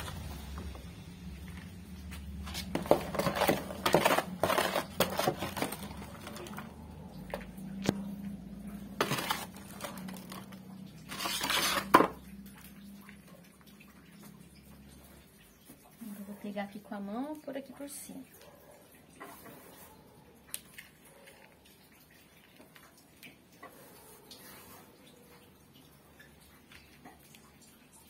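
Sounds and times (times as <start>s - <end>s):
soil pattering into plastic pot: 0.0s - 12.4s
metal trowel scraping soil: 2.4s - 6.5s, 9.0s - 10.4s, 11.1s - 12.1s.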